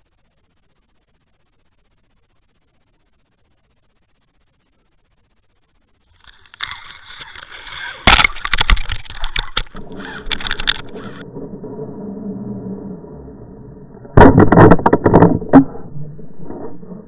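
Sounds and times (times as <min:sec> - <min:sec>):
underwater knocks and scrapes: 0:06.2 - 0:11.5, 0:14.0 - 0:17.0.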